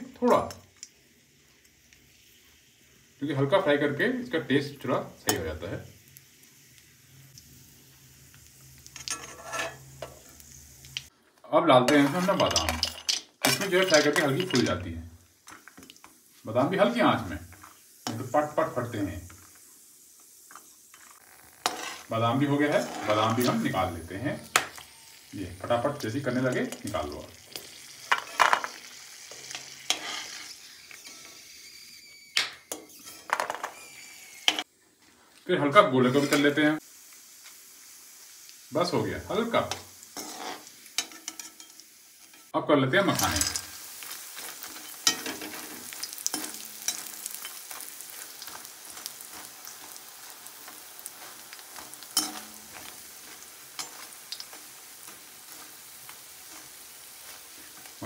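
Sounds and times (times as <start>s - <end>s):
ghee sizzling faintly: 0.0s - 58.0s
metal spoon scraping steel pan: 9.0s - 10.3s, 11.9s - 14.7s, 21.6s - 22.1s, 22.7s - 23.6s, 29.4s - 31.5s, 36.1s - 36.5s, 39.7s - 42.5s, 44.6s - 47.7s, 50.6s - 54.6s
almonds clattering onto plate: 11.9s - 14.8s.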